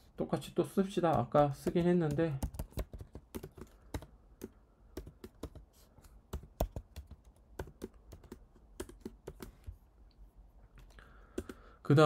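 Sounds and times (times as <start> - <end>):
typing on computer keyboard: 1.2 - 5.6, 6.3 - 9.6, 11.3 - 11.6.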